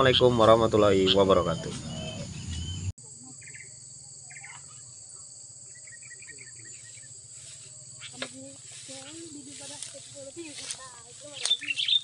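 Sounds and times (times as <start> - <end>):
crickets droning: 0.0 - 12.0
bird chirps: 1.0 - 5.0, 5.6 - 8.3, 11.2 - 12.0.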